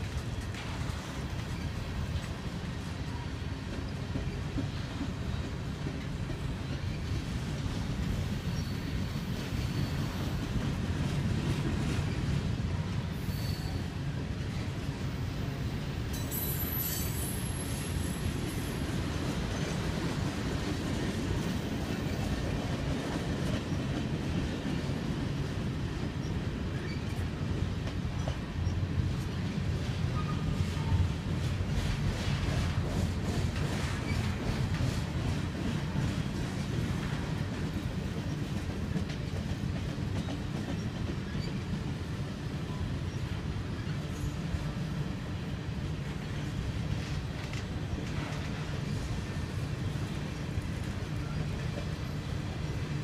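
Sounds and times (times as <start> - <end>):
train cars rolling on rails: 0.0 - 53.0
high-pitched wheel squeals: 13.2 - 13.9.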